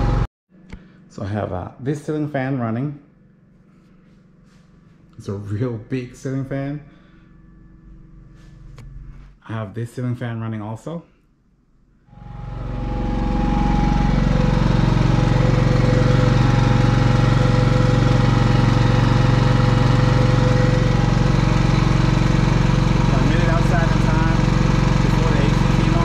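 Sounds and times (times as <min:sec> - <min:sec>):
generator engine droning: 0:00.0 - 0:09.3, 0:12.1 - 0:26.0
steady whining tones: 0:12.1 - 0:26.0.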